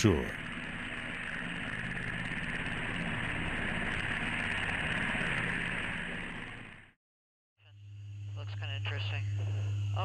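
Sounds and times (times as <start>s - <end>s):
helicopter turbine hiss: 0.0s - 6.8s
engine and rotor drone: 0.0s - 7.0s, 7.6s - 10.0s.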